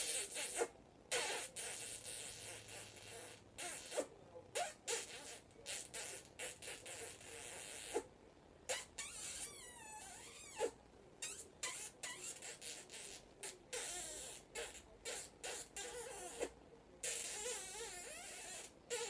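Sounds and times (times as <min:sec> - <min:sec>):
parrot squeaking: 0:08.7 - 0:12.8.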